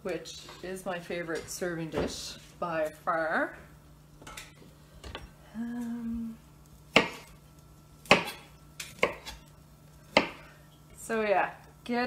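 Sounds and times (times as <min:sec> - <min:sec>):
person humming: 0:05.4 - 0:06.4
knife chopping on cutting board: 0:06.9 - 0:07.3, 0:08.1 - 0:09.4, 0:10.1 - 0:10.4.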